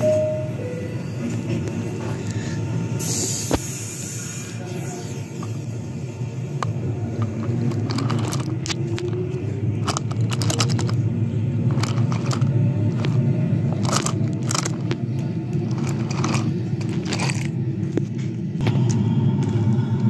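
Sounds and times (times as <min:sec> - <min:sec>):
toy train cars clicking: 0:06.5 - 0:17.6
toy train wheels rolling: 0:06.6 - 0:11.0, 0:11.6 - 0:17.6.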